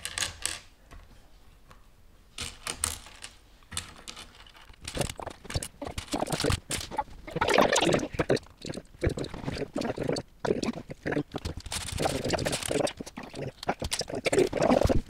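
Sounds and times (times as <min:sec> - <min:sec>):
plastic pieces clicking and clattering: 0:00.0 - 0:00.7, 0:02.4 - 0:09.7, 0:11.1 - 0:15.0.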